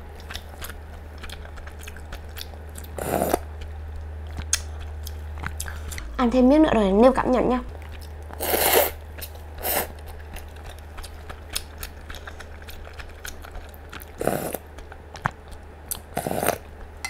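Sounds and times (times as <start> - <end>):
wet chewing: 0.0 - 17.0
noodles slurped: 0.3 - 3.5, 7.8 - 16.8.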